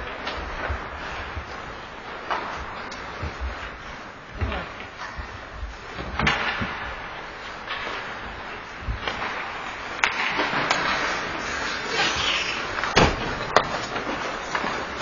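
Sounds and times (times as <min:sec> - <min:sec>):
hockey sticks and puck clacking: 0:00.0 - 0:15.0
skate blades scraping ice: 0:07.4 - 0:15.0.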